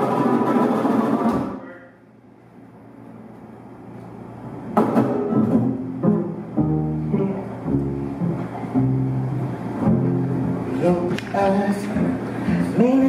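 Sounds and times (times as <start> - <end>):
guitar: 0.0 - 1.9, 3.0 - 13.0
jazz band playing: 4.9 - 13.0
upright bass: 4.9 - 13.0.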